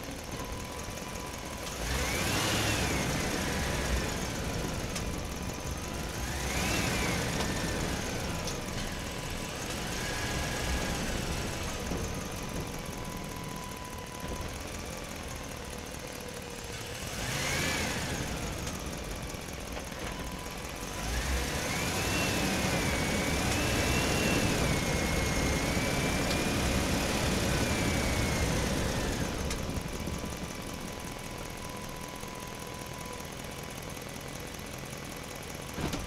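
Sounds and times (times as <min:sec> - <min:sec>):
small electric motors whining: 0:00.3 - 0:33.4.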